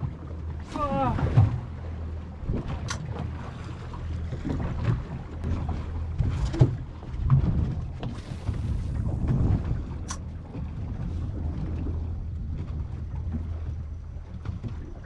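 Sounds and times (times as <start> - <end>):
outboard engines idling: 0.0 - 15.0
wind on microphone: 4.4 - 15.0.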